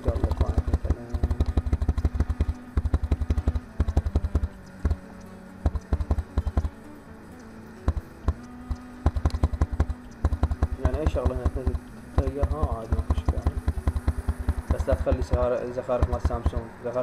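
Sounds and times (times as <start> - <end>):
keyboard key clicking rapidly: 0.0 - 6.9, 7.7 - 17.0.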